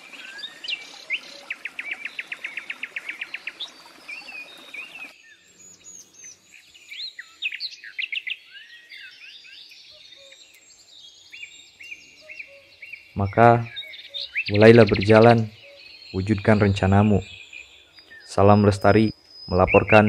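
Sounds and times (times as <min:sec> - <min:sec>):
background noise: 0:00.0 - 0:20.0
forest birds calling and singing: 0:00.0 - 0:20.0
fast bird trill: 0:12.0 - 0:20.0.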